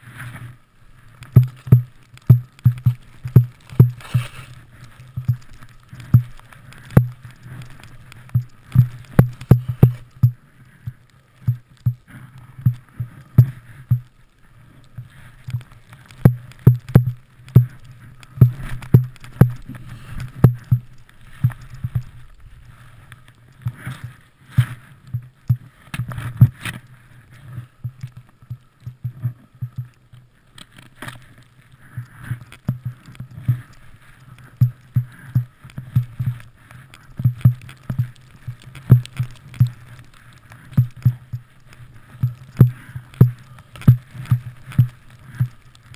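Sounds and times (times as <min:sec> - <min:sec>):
snow swishing hiss: 0:03.9 - 0:05.0.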